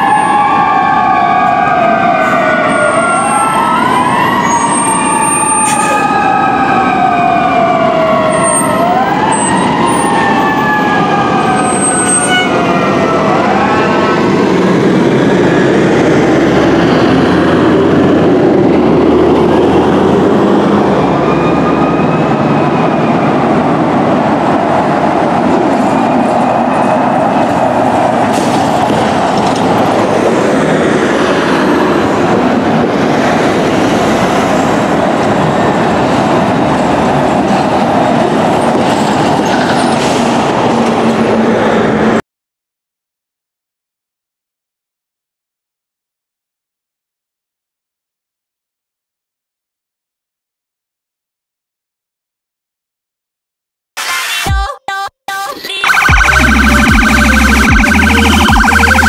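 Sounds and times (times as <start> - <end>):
fire truck sirens wailing: 0.0 - 42.2, 55.7 - 59.0
heavy truck engines rumbling: 0.0 - 42.2, 55.8 - 59.0.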